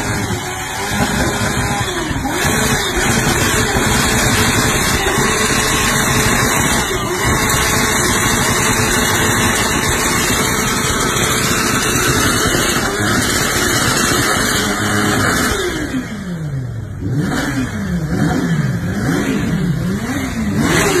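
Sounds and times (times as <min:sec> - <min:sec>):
motorcycle engine revving: 0:00.0 - 0:21.0.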